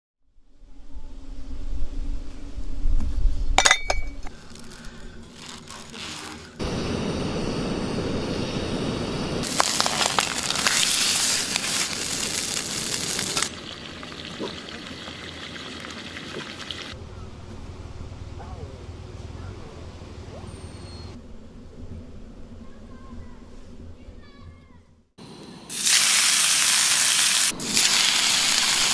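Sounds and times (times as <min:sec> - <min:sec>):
glass bottles clinking in ice bucket: 0:03.6 - 0:04.4
fish sizzling in a frying pan: 0:09.4 - 0:17.0, 0:25.7 - 0:28.9.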